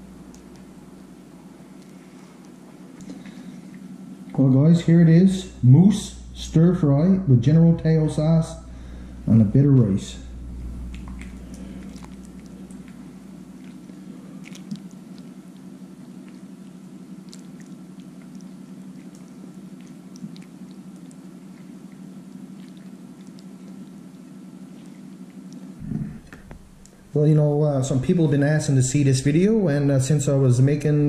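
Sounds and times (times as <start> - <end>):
steady low hum: 0.0 - 31.0
wet squishing plops of food: 10.6 - 25.8.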